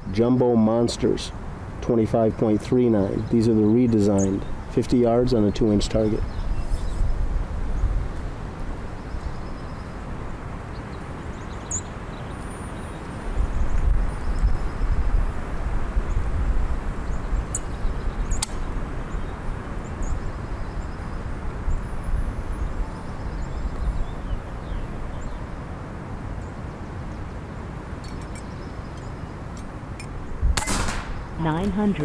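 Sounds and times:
wind buffeting microphone: 0.0s - 11.7s, 12.8s - 26.6s, 28.0s - 32.0s
light click: 18.4s - 18.6s.

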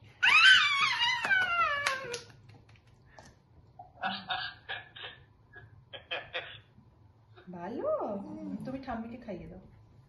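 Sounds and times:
hand claps: 1.0s - 3.3s.

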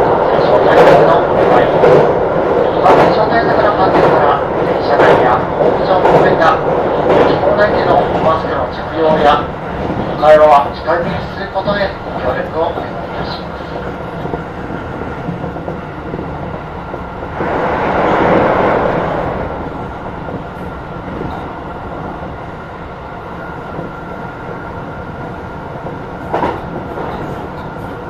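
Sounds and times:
train wheels on rails: 0.0s - 28.0s
rail-joint clatter: 2.7s - 18.9s, 25.8s - 28.0s.

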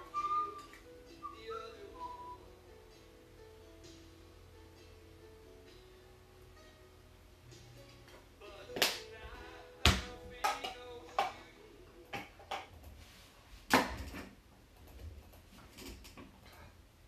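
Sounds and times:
held musical tone: 0.0s - 10.3s.

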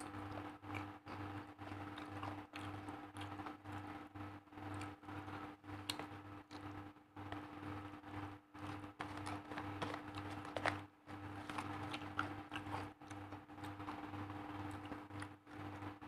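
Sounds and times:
paper and plastic crinkles: 8.7s - 12.9s.

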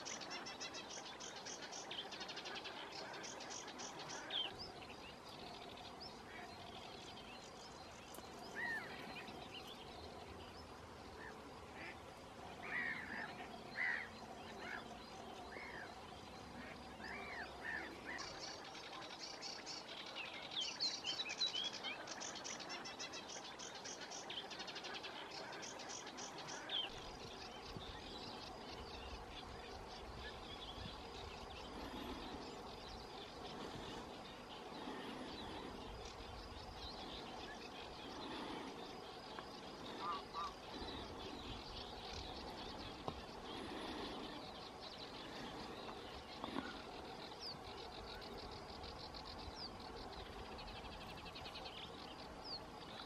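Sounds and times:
wild bird calls and chirps: 0.0s - 53.0s
low wind noise: 21.9s - 53.0s
bird trills: 39.9s - 42.3s.

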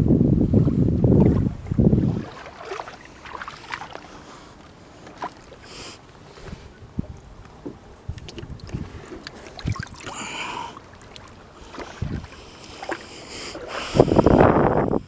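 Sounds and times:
water sloshing and splashing: 1.0s - 14.6s
knocks and thumps against boat: 6.4s - 10.1s.

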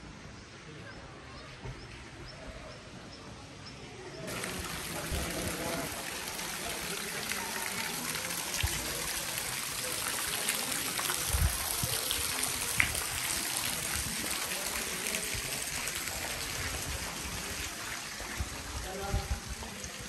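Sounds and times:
fountain splashing into pond: 4.3s - 20.0s.

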